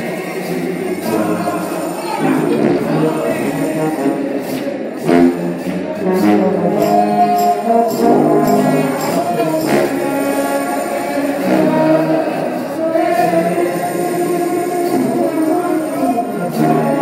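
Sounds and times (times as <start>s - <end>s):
sharp percussion hits: 0.0s - 11.6s
instrumental backing: 0.0s - 17.0s
voices singing held notes: 0.0s - 17.0s.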